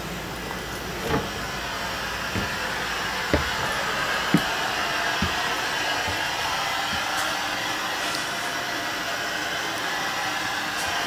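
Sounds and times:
fan blowing: 0.0 - 11.0
footsteps thumping on floor: 1.0 - 1.4, 2.3 - 7.4.

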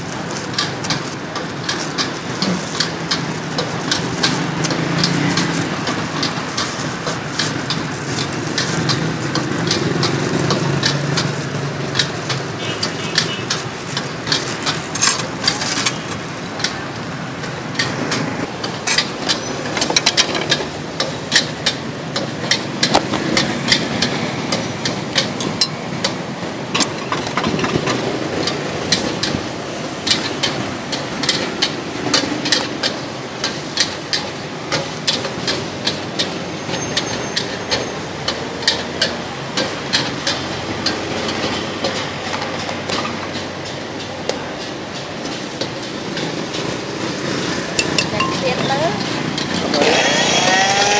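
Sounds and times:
clinks in glass blender jar: 47.8 - 48.7.

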